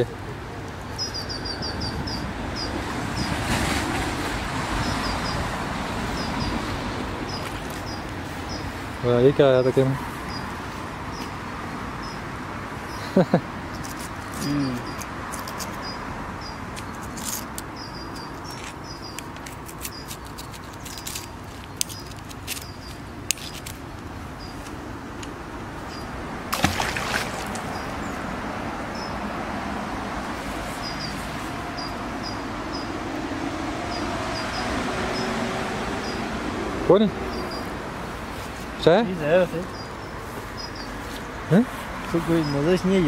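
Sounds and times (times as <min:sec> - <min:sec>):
small birds chirping: 0:00.8 - 0:03.4, 0:06.1 - 0:11.4, 0:12.0 - 0:24.8, 0:25.8 - 0:28.2, 0:30.6 - 0:33.0, 0:37.0 - 0:43.0
river rushing: 0:26.2 - 0:28.5.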